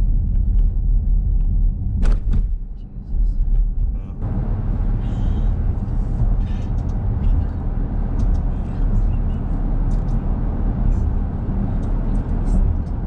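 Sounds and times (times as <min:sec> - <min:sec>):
road and tyre noise in car: 0:00.0 - 0:13.0.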